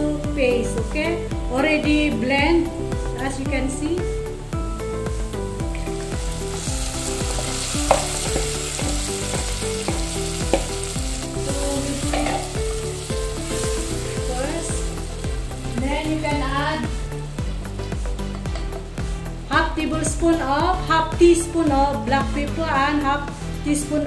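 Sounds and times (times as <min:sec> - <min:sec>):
food sizzling in a pan: 0:02.9 - 0:19.4.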